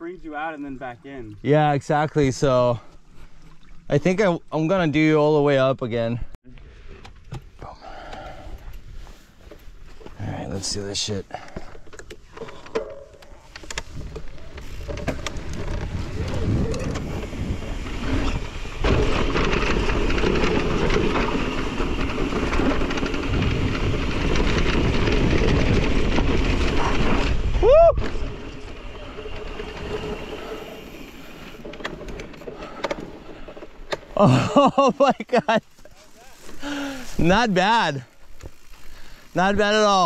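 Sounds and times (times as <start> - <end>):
tyres rolling on dirt: 13.4 - 40.0
wind rushing over microphone: 15.3 - 30.7.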